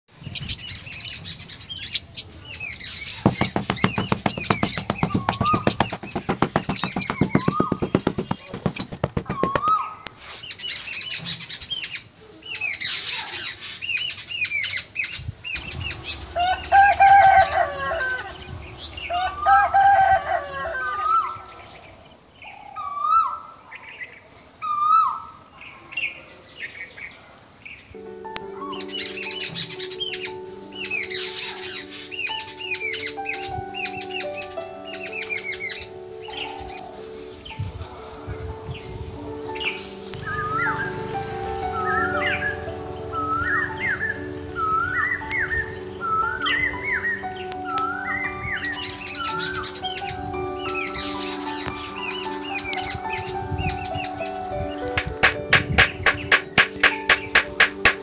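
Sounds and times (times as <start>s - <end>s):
birds chirping: 0.2s - 37.6s, 38.3s - 58.0s
music: 2.9s - 9.8s, 15.6s - 21.4s, 28.0s - 58.0s
fast rattling bird call: 3.2s - 10.0s.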